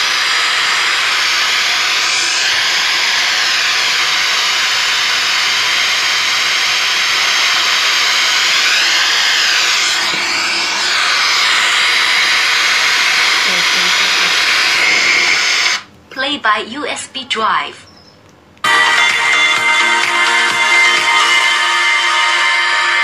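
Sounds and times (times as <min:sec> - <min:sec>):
radio static hiss: 0:08.6 - 0:15.8.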